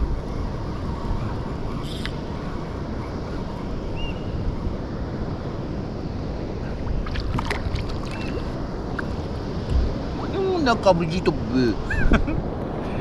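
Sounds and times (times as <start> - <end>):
wind buffeting microphone: 0.0 - 13.0
water lapping against kayak: 6.6 - 10.3
fish splashing: 6.8 - 9.2.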